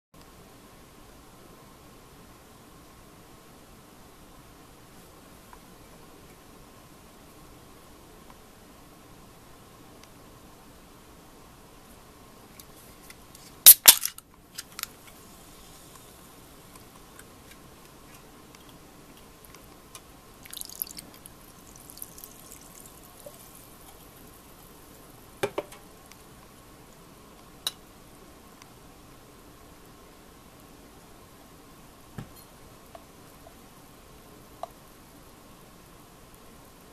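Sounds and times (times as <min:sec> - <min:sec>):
fizzy drink hissing poured over ice: 0:20.4 - 0:24.9.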